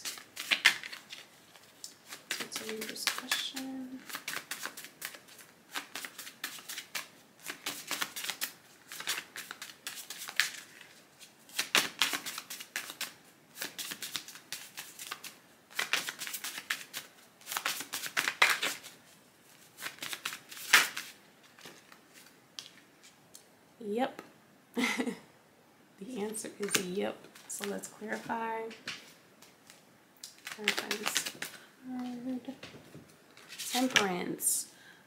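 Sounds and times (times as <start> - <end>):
cards shuffling: 0.0 - 19.0, 19.6 - 23.2, 28.8 - 32.8, 33.4 - 34.2.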